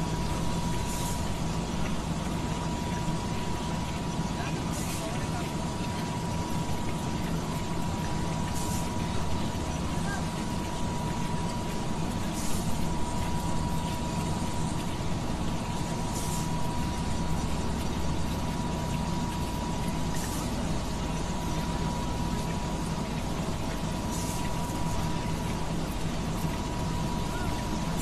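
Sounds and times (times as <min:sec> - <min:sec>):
industrial machinery hum: 0:00.0 - 0:28.0
constant high tone: 0:25.8 - 0:28.0.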